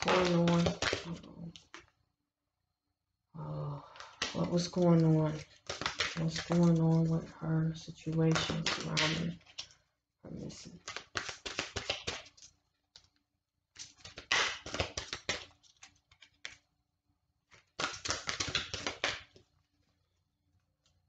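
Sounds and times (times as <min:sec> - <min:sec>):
cards being shuffled: 0:00.0 - 0:01.9, 0:03.9 - 0:09.8, 0:10.4 - 0:16.6, 0:17.4 - 0:19.5.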